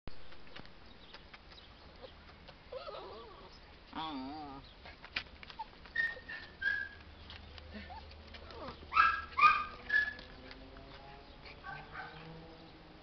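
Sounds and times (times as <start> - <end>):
puppy whining: 2.0 - 4.6, 5.5 - 7.0, 7.7 - 10.4
light scuffs and clicks: 4.7 - 12.0.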